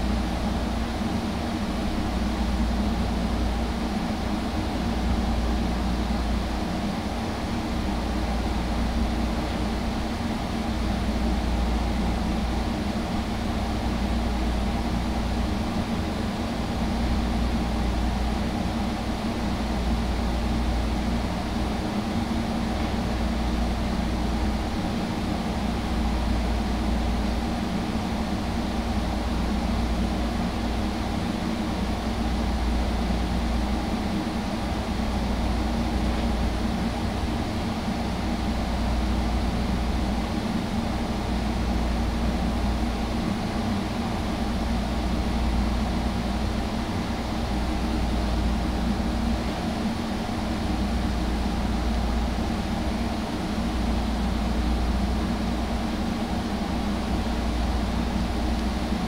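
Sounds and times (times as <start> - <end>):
air conditioner humming: 0.0 - 59.0.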